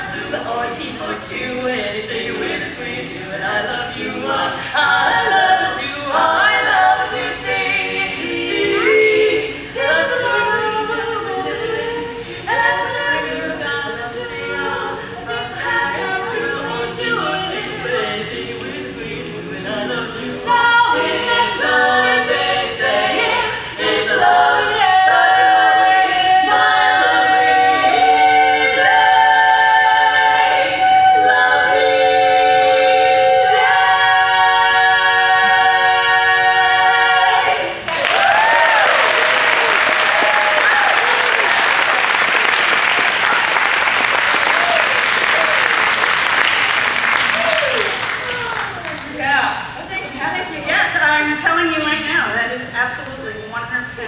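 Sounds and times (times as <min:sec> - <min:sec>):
women singing a cappella harmony: 0:00.0 - 0:38.9
audience applause: 0:37.9 - 0:49.2.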